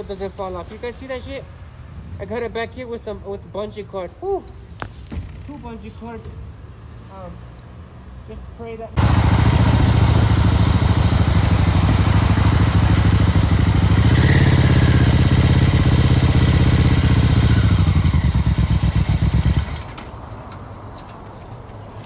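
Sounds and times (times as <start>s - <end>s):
motorcycle engine running: 9.0s - 20.0s.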